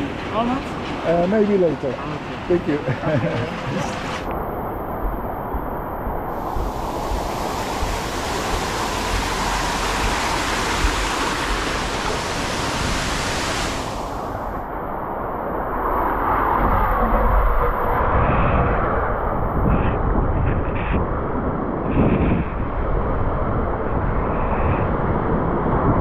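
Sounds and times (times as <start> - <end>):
water rushing down slide: 6.3 - 14.6.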